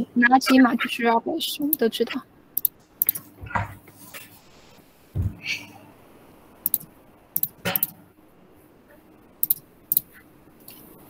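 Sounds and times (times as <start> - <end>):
computer mouse clicks: 2.6 - 3.2, 6.7 - 7.9, 9.4 - 10.1
soft thump: 5.2 - 5.4.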